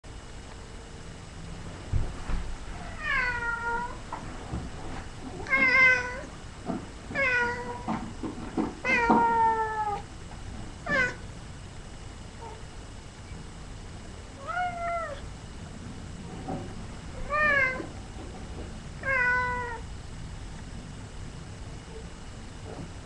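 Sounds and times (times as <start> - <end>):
cat meowing: 2.9 - 4.0, 5.5 - 6.3, 7.2 - 7.9, 8.8 - 10.0, 10.9 - 11.2, 14.4 - 15.3, 17.2 - 17.9, 19.0 - 19.8.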